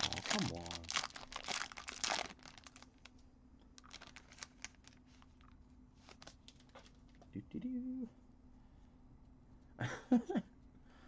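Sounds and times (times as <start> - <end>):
foil wrapper crinkling: 0.0 - 3.2, 3.8 - 7.1
faint steady hum: 0.0 - 11.0.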